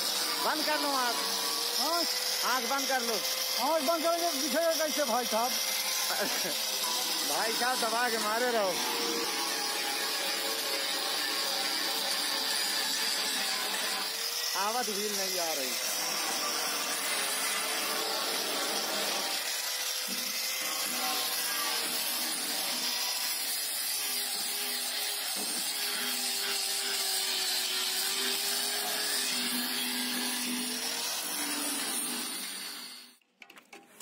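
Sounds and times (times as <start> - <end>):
angle grinder motor whine: 0.0 - 11.0.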